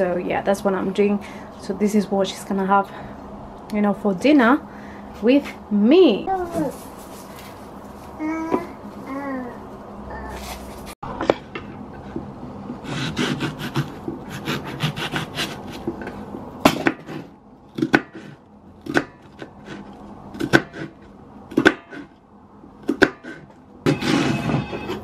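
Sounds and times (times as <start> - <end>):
knife chopping onion on wooden board: 12.9 - 16.0, 16.6 - 22.1, 22.8 - 24.2.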